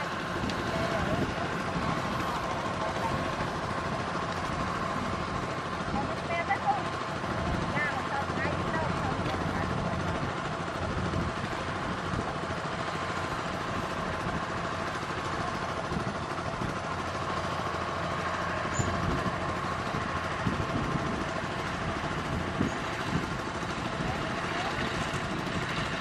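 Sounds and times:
combine harvester droning: 0:00.0 - 0:26.0.

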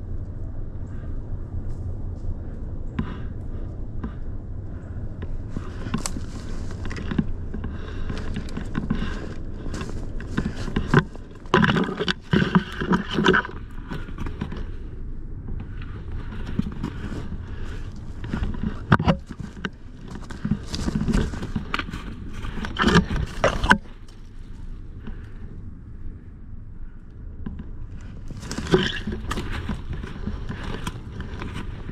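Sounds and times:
scraping and rustling: 0:05.4 - 0:14.9, 0:15.6 - 0:25.4, 0:28.0 - 0:31.9.

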